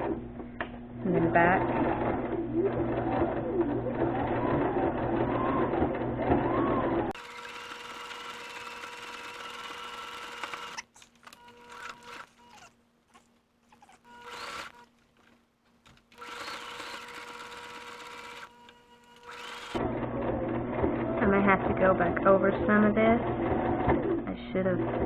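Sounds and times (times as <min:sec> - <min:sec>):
electric sewing machine running: 0:01.3 - 0:12.7, 0:14.1 - 0:14.8, 0:16.1 - 0:25.0.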